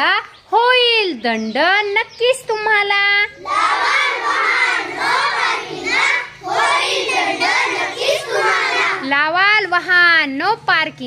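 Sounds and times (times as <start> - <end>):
children singing in unison: 3.4 - 9.1.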